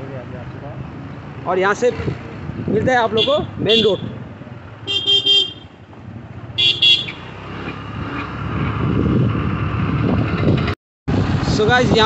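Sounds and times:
motorcycle engine and road noise: 0:00.0 - 0:12.0
vehicle horn beeping: 0:03.2 - 0:04.2, 0:04.8 - 0:05.8, 0:06.6 - 0:07.3.

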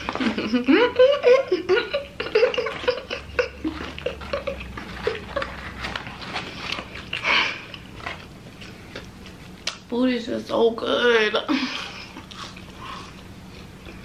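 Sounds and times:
woman humming and chuckling: 0:00.1 - 0:05.7.

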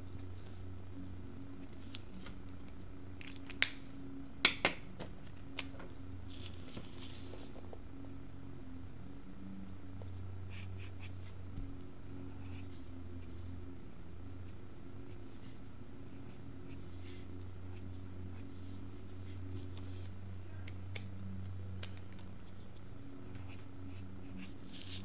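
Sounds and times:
low steady hum: 0:00.0 - 0:25.0
markers scratching on paper: 0:06.3 - 0:07.7, 0:10.1 - 0:11.4, 0:16.7 - 0:20.2, 0:22.0 - 0:25.0.

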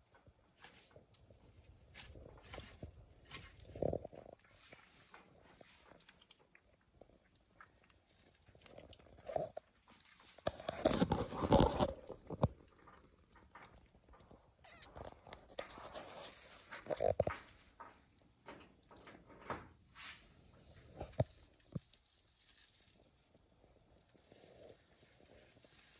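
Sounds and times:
lizards chewing and snapping: 0:00.2 - 0:19.8, 0:20.4 - 0:25.9
scuffling and knocks: 0:00.4 - 0:06.2.

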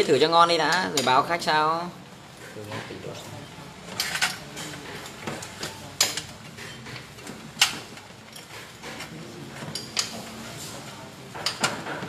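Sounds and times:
tools clicking and knocking: 0:03.9 - 0:10.3, 0:11.3 - 0:12.0.

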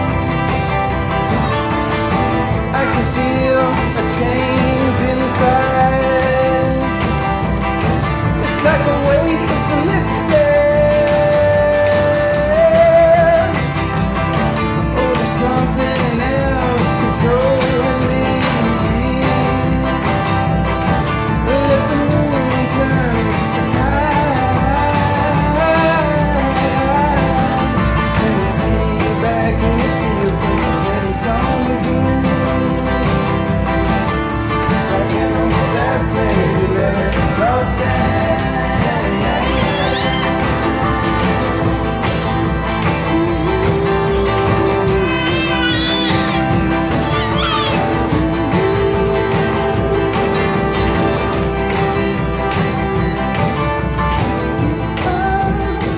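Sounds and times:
acoustic guitar strumming: 0:00.0 - 0:55.9
drum beat: 0:00.0 - 0:55.9
man singing: 0:02.4 - 0:55.9.

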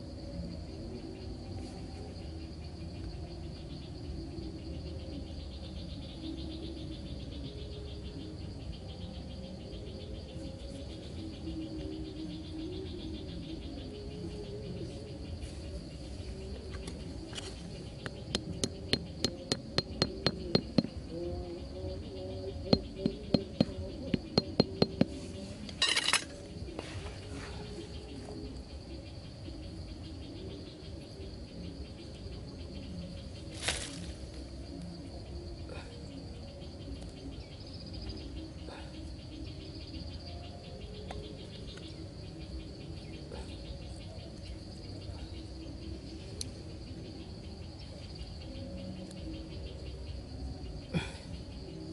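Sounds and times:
insects trilling: 0:00.0 - 0:51.9
hatchet tapping a wooden peg: 0:18.0 - 0:21.0, 0:22.8 - 0:25.2.

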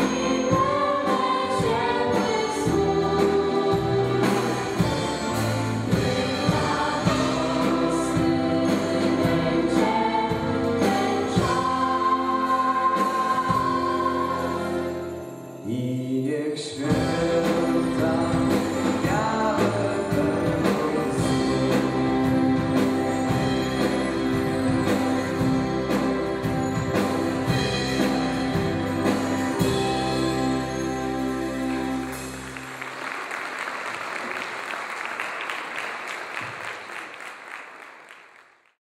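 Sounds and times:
instrumental backing: 0:00.0 - 0:15.9, 0:16.9 - 0:33.0
vocal group singing a carol: 0:00.0 - 0:31.4
sleigh bells jingling: 0:00.0 - 0:32.8
audience applause: 0:31.9 - 0:38.8.

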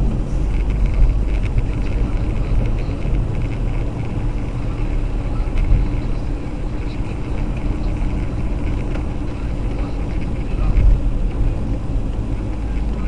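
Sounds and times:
car driving on wet road: 0:00.0 - 0:13.0.

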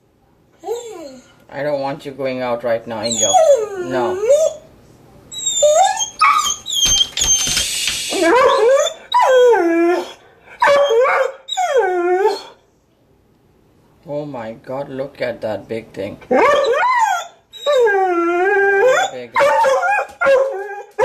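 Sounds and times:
dog whining and howling: 0:00.6 - 0:01.3, 0:03.0 - 0:04.7, 0:05.3 - 0:12.6, 0:16.3 - 0:21.0.

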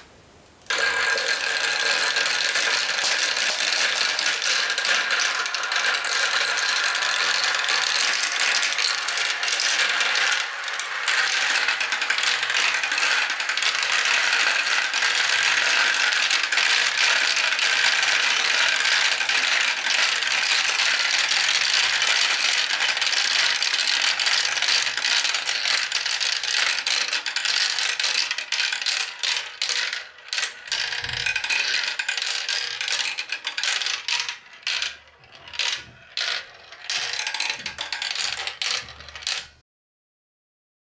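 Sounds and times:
marbles rattling down plastic track: 0:00.7 - 0:39.6.

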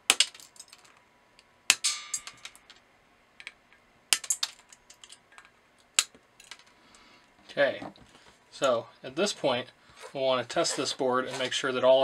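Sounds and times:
wire cutters snipping: 0:04.1 - 0:05.2.

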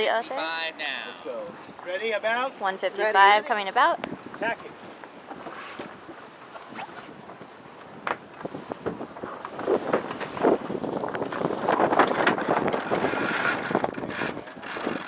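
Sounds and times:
wind buffeting microphone: 0:01.2 - 0:15.0
sailcloth flapping and rustling: 0:05.1 - 0:15.0.

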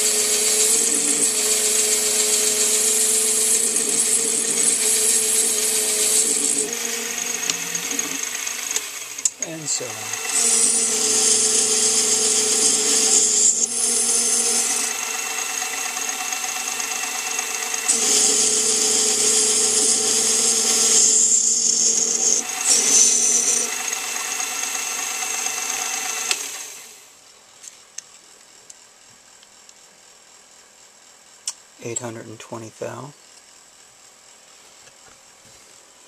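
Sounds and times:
cutting tool hissing on metal: 0:00.0 - 0:27.0
lathe motor whining: 0:00.0 - 0:27.0.

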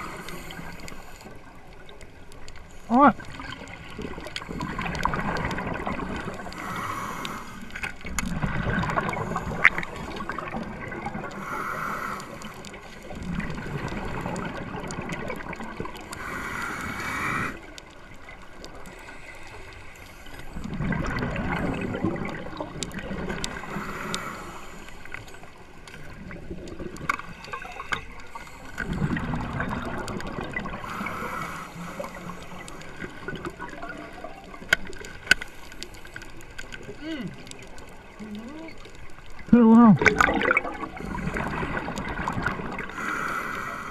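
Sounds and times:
underwater exhaled bubbles gurgling: 0:00.0 - 0:43.9
small clicks: 0:11.2 - 0:40.5.

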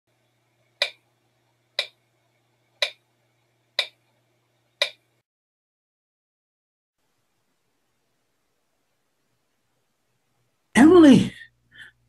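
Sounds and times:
faint steady hum: 0:00.1 - 0:05.2, 0:07.0 - 0:12.0
clock ticking: 0:00.8 - 0:01.0, 0:01.8 - 0:02.0, 0:02.8 - 0:03.0, 0:03.8 - 0:04.0, 0:04.8 - 0:05.0.

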